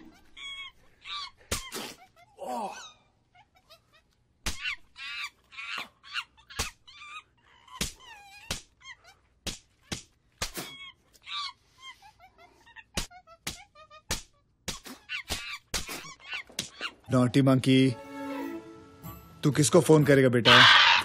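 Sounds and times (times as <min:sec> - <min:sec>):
open-hand slaps: 0:07.8 - 0:08.8, 0:09.4 - 0:10.8, 0:13.0 - 0:16.9
monkey chattering calls: 0:20.5 - 0:21.0.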